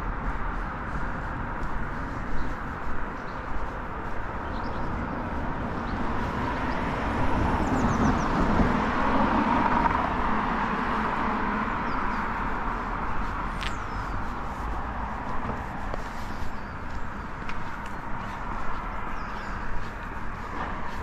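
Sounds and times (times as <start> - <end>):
road traffic noise: 0.0 - 21.0.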